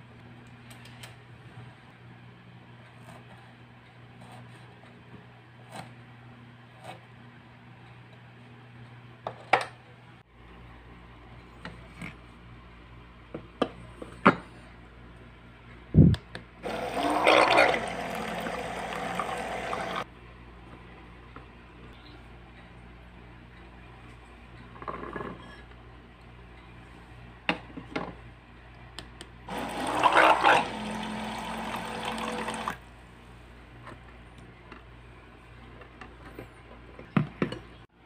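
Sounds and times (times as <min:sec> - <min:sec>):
water pouring into a steel colander: 0:29.5 - 0:32.8.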